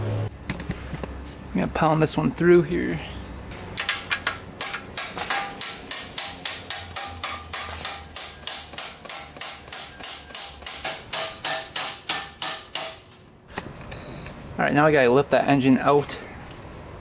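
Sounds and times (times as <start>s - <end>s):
hammer striking metal bolt: 3.8s - 13.0s.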